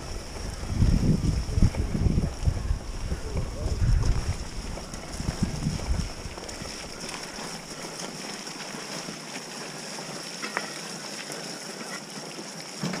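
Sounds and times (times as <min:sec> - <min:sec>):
wind on microphone: 0:00.0 - 0:07.8
bike tyres rolling through mud: 0:00.0 - 0:13.0.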